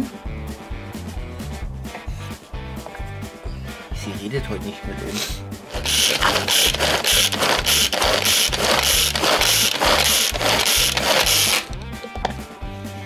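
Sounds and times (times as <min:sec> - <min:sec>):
pull-cord food chopper whirring: 0:05.7 - 0:11.8.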